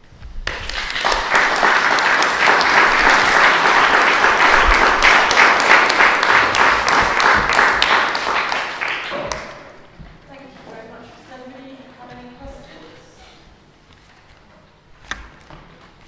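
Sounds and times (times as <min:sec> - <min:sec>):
audience applauding: 0:00.4 - 0:09.8.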